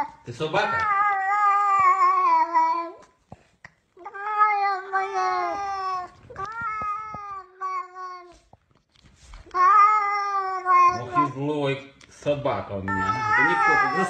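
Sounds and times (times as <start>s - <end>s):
cat meowing: 0.0s - 3.0s, 4.0s - 8.4s, 9.5s - 11.4s, 12.8s - 14.0s.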